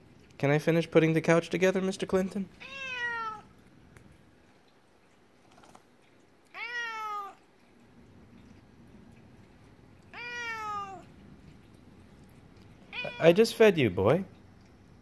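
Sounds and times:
cat meowing: 2.6s - 3.5s, 6.5s - 7.4s, 10.1s - 11.1s, 12.9s - 13.5s.

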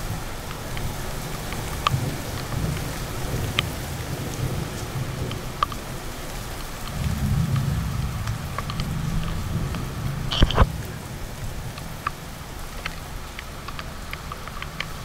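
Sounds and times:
heavy rain falling: 0.0s - 15.0s
raindrops tapping on phone: 0.1s - 15.0s
low rumble: 6.9s - 12.0s.

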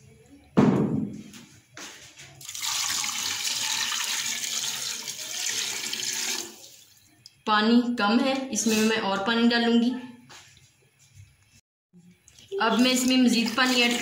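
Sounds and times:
loud knock: 0.6s - 1.2s
water pouring from a jug: 2.4s - 6.9s, 12.3s - 14.0s.

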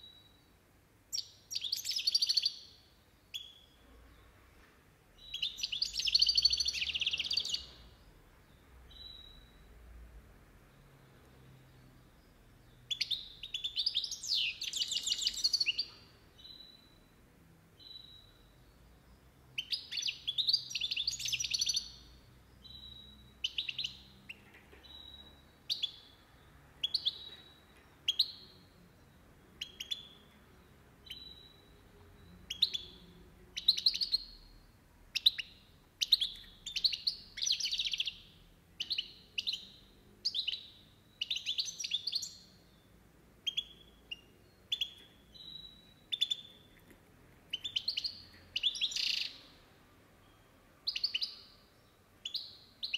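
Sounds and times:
goldfinch twittering song: 1.1s - 3.8s, 5.2s - 8.0s, 12.7s - 17.0s, 17.8s - 26.2s, 29.6s - 46.8s, 47.5s - 49.7s, 50.8s - 52.9s.

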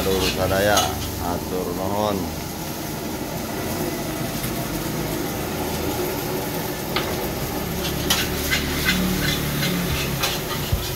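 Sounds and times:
rice sizzling in a wok: 0.0s - 10.9s
metal ladle scraping and knocking: 7.8s - 10.9s.

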